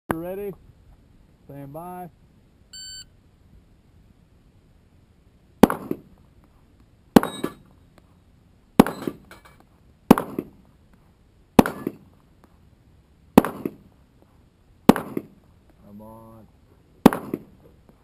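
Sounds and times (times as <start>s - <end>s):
steel target plate clanging: 7.2s - 7.7s, 8.8s - 9.6s.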